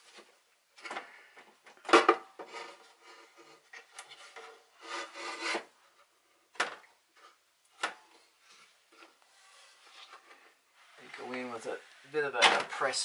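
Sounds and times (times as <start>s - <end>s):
glass shelf scraping metal: 2.4s - 5.8s.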